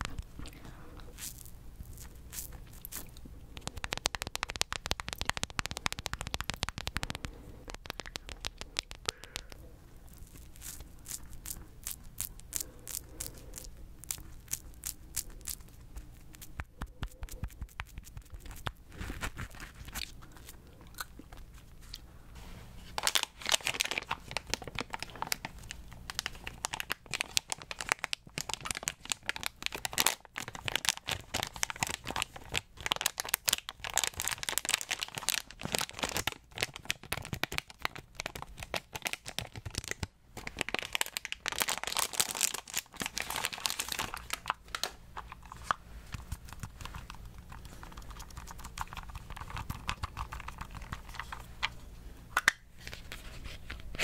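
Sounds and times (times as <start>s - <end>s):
plastic packet crinkling: 1.1s - 20.6s, 23.0s - 51.6s
soft handling noise: 50.7s - 54.0s.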